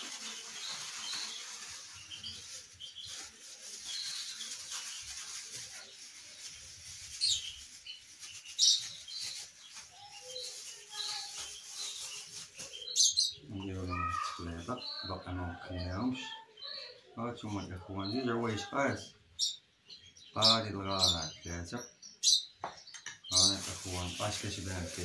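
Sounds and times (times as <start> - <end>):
plastic bag rustling and crinkling: 0.0 - 14.9, 23.3 - 25.0
small birds chirping: 0.0 - 25.0.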